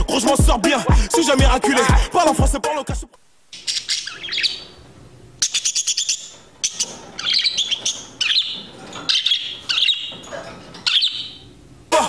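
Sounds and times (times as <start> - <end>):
parakeet chirping and chattering: 3.5 - 11.6.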